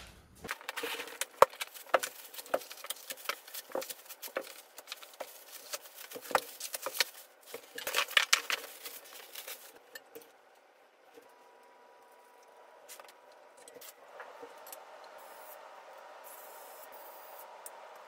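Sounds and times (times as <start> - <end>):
cardboard and plastic rustling: 0.0 - 10.0.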